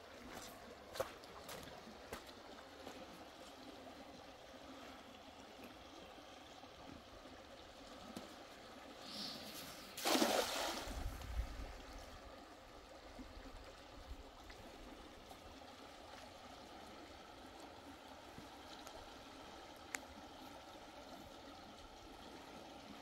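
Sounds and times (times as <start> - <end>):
water flowing and trickling: 0.0 - 23.0
water splash: 9.8 - 11.6.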